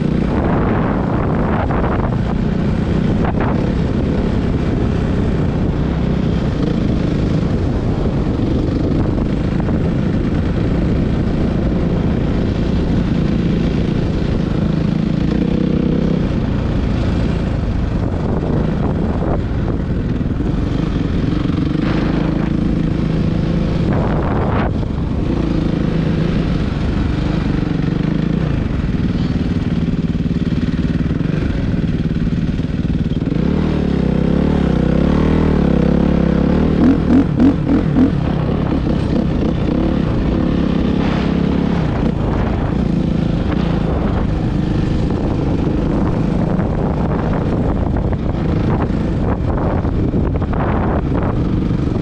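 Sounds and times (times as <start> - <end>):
dirt bike engine revving: 18.2 - 52.0.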